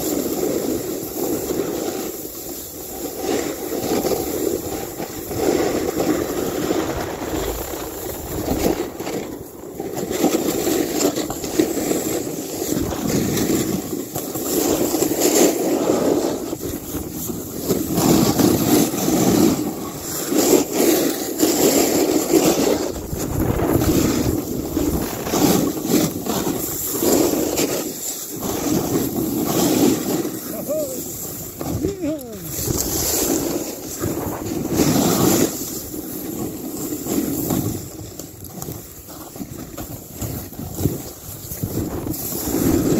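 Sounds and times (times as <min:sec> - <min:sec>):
snowboard scraping over snow: 0:00.0 - 0:42.9
wind buffeting microphone: 0:04.6 - 0:10.2, 0:22.5 - 0:27.4, 0:30.1 - 0:35.6, 0:39.5 - 0:42.9.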